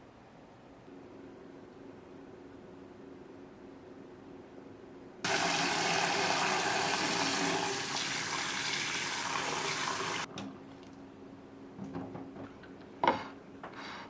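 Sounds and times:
low steady hum: 0.0 - 7.0.

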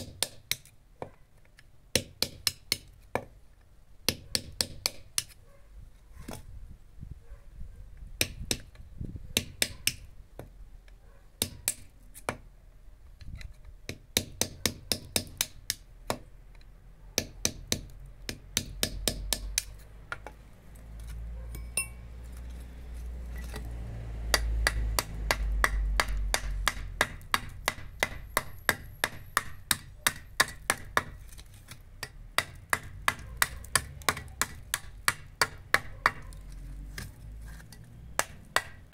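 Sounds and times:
trowel chopping brick: 0.0 - 1.1, 1.9 - 3.3, 4.1 - 5.4, 9.4 - 10.5, 11.4 - 12.4, 13.9 - 16.3, 17.2 - 20.4, 24.3 - 38.9.

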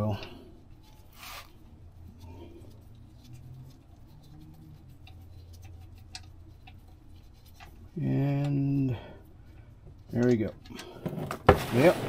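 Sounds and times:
low steady hum: 0.0 - 12.0
small clicks and scratches: 0.7 - 8.6.

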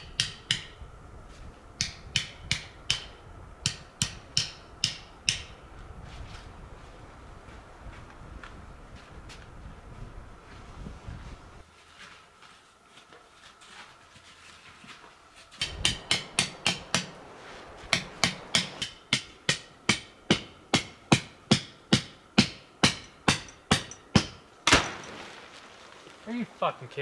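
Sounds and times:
tent stake being hammered: 0.0 - 0.8, 1.8 - 5.6, 15.6 - 17.2, 17.9 - 25.3.

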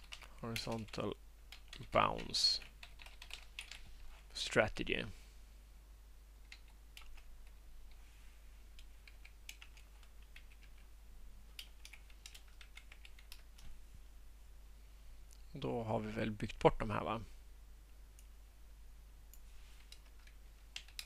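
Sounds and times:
typing on keyboard: 0.0 - 3.9, 6.4 - 7.6, 8.8 - 10.9, 11.5 - 13.7, 19.8 - 21.0.

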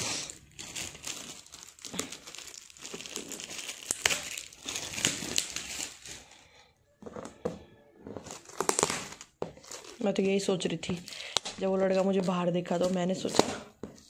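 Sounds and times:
foil gift-wrap crinkling: 0.0 - 6.4, 8.3 - 13.5.

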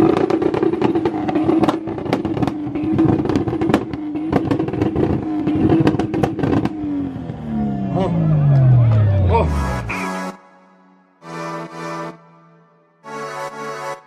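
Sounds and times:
exhaust banging and popping: 0.0 - 7.6
car engine at high revs: 0.0 - 9.3.

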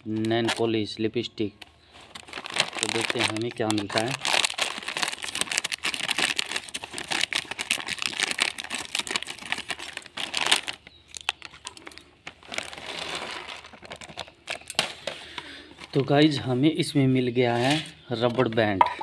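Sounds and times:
plastic packet crinkling: 0.0 - 0.8, 1.6 - 16.1.

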